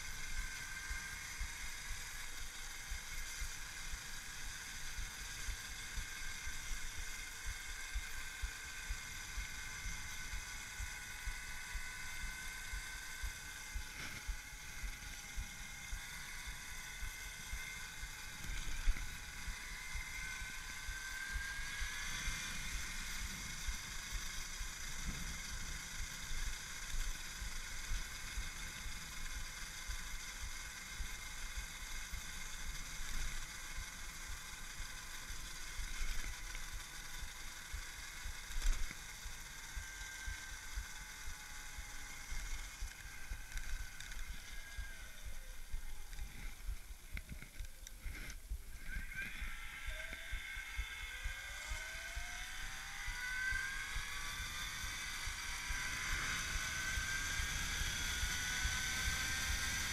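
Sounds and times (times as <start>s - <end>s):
electric motor whining: 0.0s - 59.9s.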